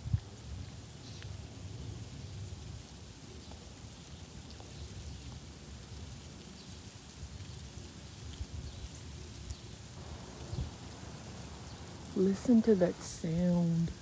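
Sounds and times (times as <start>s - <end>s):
wind rumbling on microphone: 0.0s - 14.0s
ice ticking and crackling: 3.0s - 14.0s.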